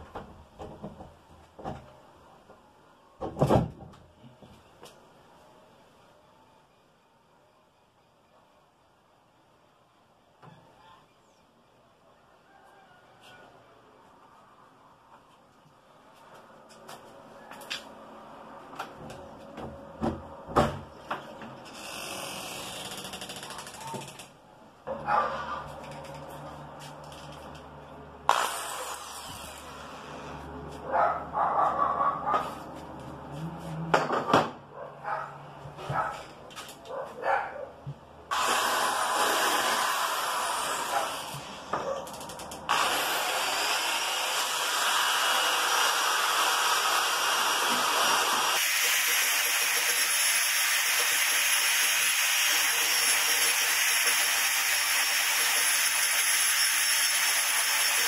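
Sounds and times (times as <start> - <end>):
electric drill grinding wood: 21.6 - 24.3, 28.3 - 30.5, 38.3 - 58.0.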